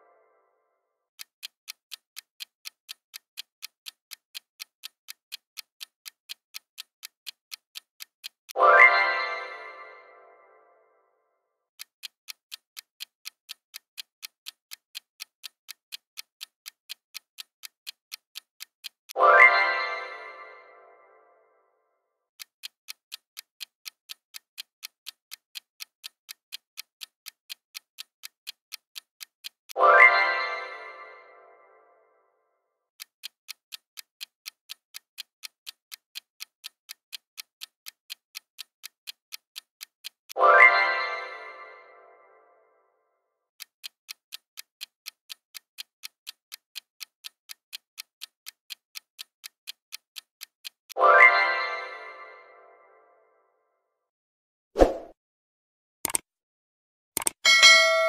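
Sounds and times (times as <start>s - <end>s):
fast clock ticking: 1.1s - 9.8s, 11.7s - 20.5s, 22.3s - 31.1s, 32.9s - 41.8s, 43.5s - 51.6s, 57.2s - 58.0s.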